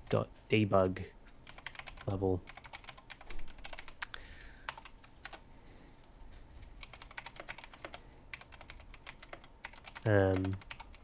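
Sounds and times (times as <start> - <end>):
computer keyboard typing: 1.4 - 4.0, 4.7 - 5.4, 6.8 - 11.0.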